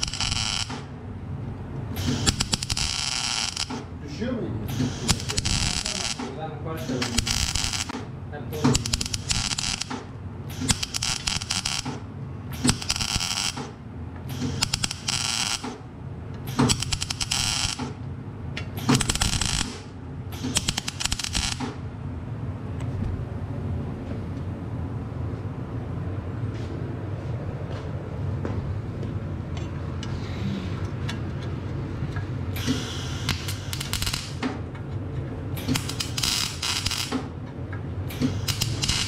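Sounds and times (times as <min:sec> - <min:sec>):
crackling welding arc: 0:00.0 - 0:00.9, 0:02.0 - 0:03.9, 0:04.7 - 0:08.0, 0:08.6 - 0:12.0, 0:12.6 - 0:13.7, 0:14.4 - 0:15.8, 0:16.5 - 0:18.0, 0:18.8 - 0:21.8, 0:32.6 - 0:34.4, 0:35.6 - 0:37.3, 0:38.1 - 0:39.0
steady low hum: 0:00.0 - 0:39.0.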